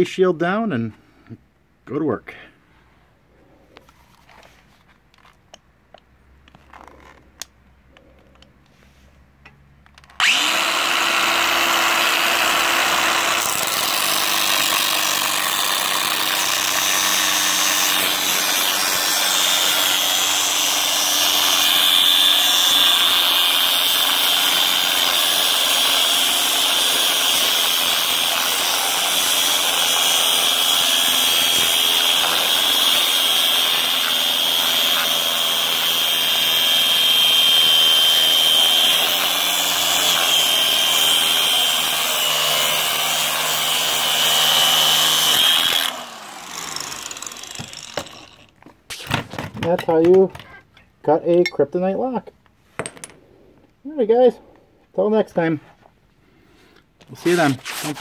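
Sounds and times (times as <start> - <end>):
angle grinder cutting steel: 10.2 - 48.5.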